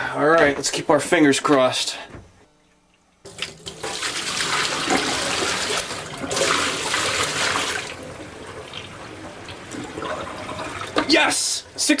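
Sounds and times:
water splashing into a steel sink: 3.2 - 11.2
water running into a drain: 3.2 - 11.8.

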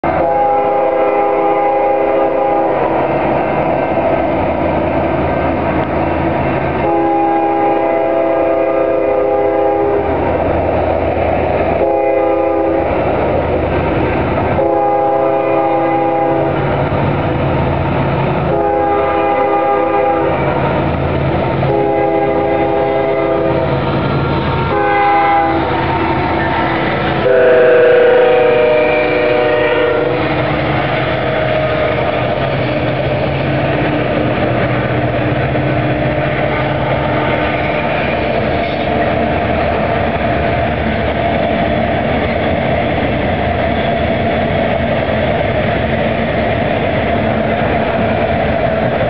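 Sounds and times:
locomotive air horn blasts: 0.0 - 2.9, 6.8 - 10.2, 11.8 - 13.0, 14.6 - 16.6, 18.4 - 20.6, 21.6 - 23.7, 24.7 - 26.2, 27.2 - 30.5
train wheels on rails: 0.0 - 49.0
diesel engine rumble: 16.3 - 49.0.

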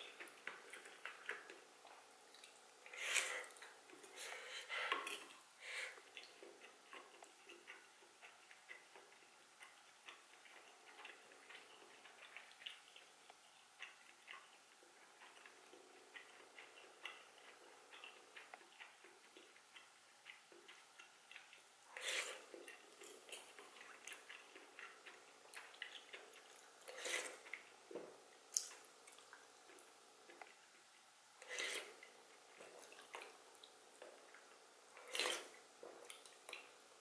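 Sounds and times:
soft chewing: 0.0 - 37.0
slurping soup from a spoon: 31.4 - 32.0, 35.0 - 35.6.

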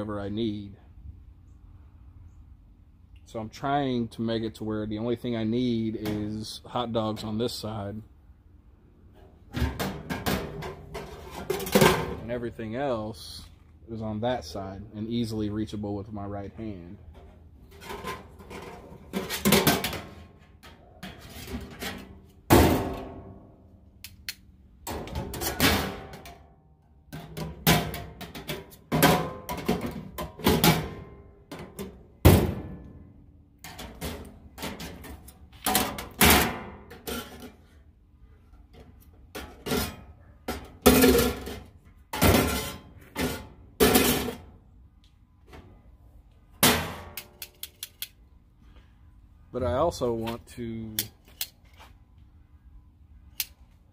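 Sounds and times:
metal pans and lids clanking: 9.5 - 12.2, 17.7 - 23.0, 39.3 - 44.5.

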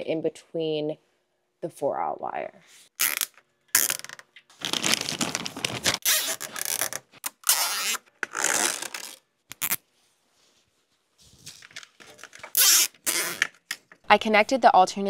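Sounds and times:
cables rustling and scraping: 3.8 - 14.1.

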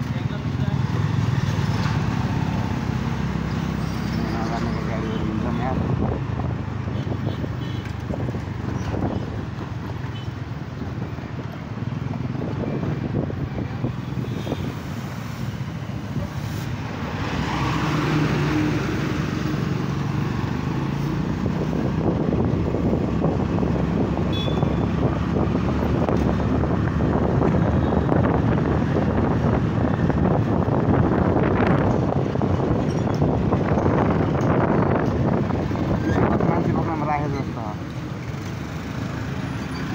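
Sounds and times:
wind buffeting microphone: 18.2 - 37.0.

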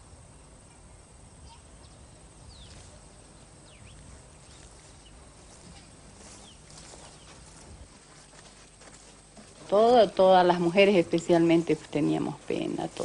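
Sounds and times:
low rumble and hiss: 0.0 - 13.0
high falling bird chirps: 1.4 - 5.3.

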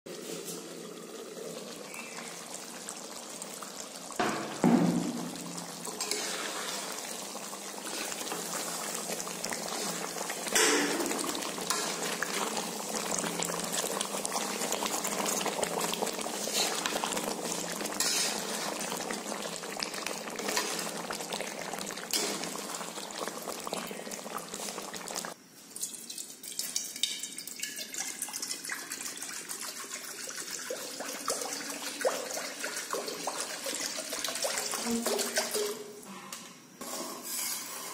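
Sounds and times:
chicken sizzling in gravy: 0.1 - 25.4
water pouring into pan: 0.1 - 35.8
loud knocks: 4.2 - 5.4
spatula stirring: 5.9 - 10.3, 11.5 - 14.6, 15.2 - 19.2.

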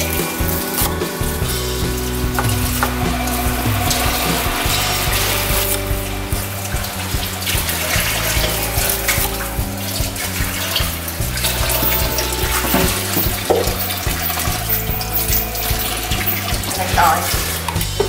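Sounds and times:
background music with bass line: 0.0 - 18.0.

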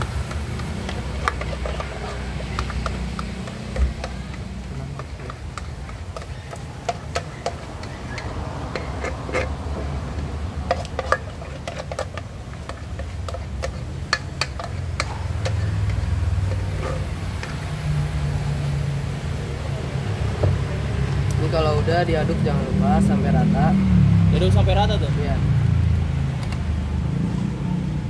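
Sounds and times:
spatula scraping enamel bowl: 0.1 - 18.5.

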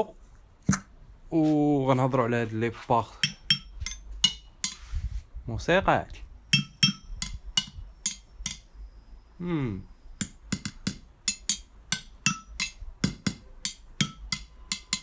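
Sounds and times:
screwdriver tapping metal engine parts: 3.2 - 4.8, 6.5 - 8.7, 10.2 - 15.0
person humming: 9.4 - 9.9.

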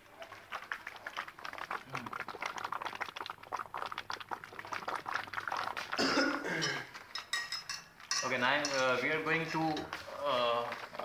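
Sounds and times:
gas bubbling through water: 1.6 - 6.1.

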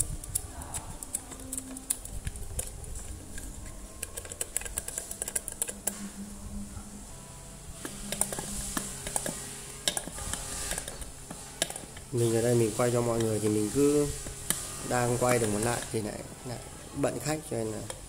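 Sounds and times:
screwdriver turning screw: 0.0 - 6.0, 7.8 - 16.1
small parts clicking and tapping: 0.0 - 6.0, 7.8 - 12.2.

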